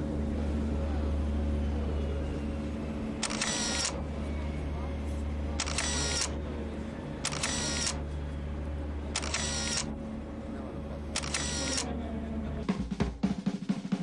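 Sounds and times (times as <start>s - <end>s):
steady low hum: 0.0s - 12.8s
camera shutter and film advance: 3.2s - 4.0s, 5.6s - 6.4s, 7.2s - 8.0s, 9.2s - 9.9s, 11.2s - 11.9s.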